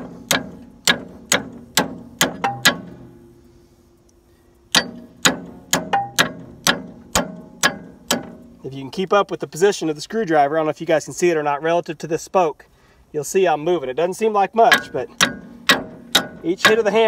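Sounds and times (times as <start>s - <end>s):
hammer striking steel screwdriver: 4.7s - 8.4s, 14.7s - 16.8s.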